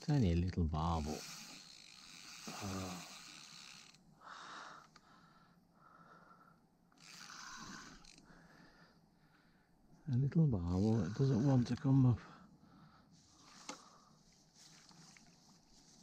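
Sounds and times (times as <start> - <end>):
man breathing heavily: 4.2 - 6.7.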